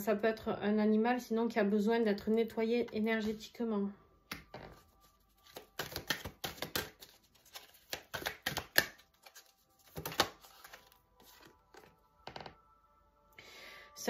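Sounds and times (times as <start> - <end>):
cards being shuffled: 4.4 - 11.9.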